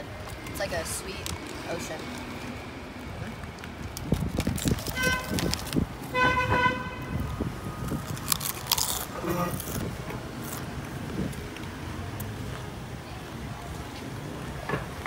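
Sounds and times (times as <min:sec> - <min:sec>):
potato chip crunching: 0:03.5 - 0:05.9, 0:07.9 - 0:10.6
vehicle horn beeping: 0:05.0 - 0:05.5, 0:06.1 - 0:07.4, 0:09.2 - 0:09.6.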